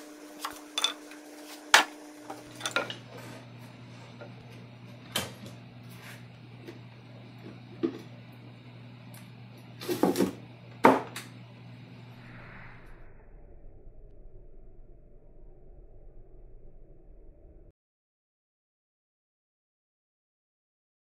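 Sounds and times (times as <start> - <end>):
low steady hum: 0.8 - 17.7.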